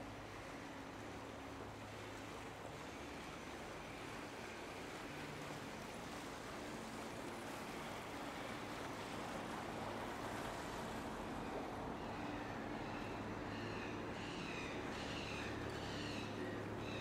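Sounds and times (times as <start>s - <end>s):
water wash: 0.0s - 11.9s
boat engine hum: 0.0s - 17.0s.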